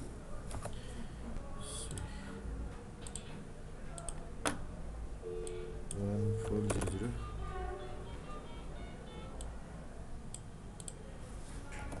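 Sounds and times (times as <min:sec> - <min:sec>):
low background hum: 0:00.0 - 0:12.0
mouse and keyboard clicks: 0:03.0 - 0:03.4.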